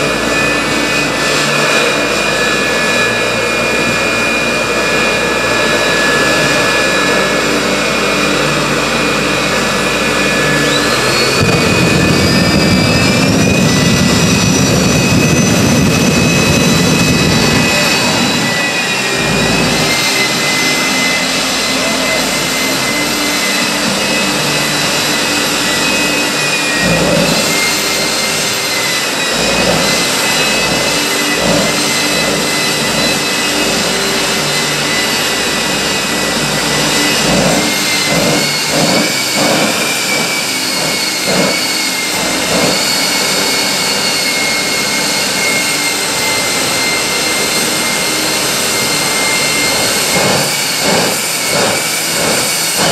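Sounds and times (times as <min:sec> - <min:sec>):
high turbine whine: 0:00.0 - 0:52.9
jet engine running: 0:00.0 - 0:52.9.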